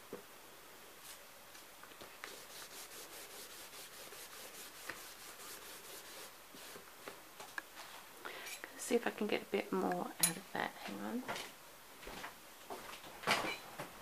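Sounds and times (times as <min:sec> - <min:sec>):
paper rubbing over wet paper: 0:02.0 - 0:06.9.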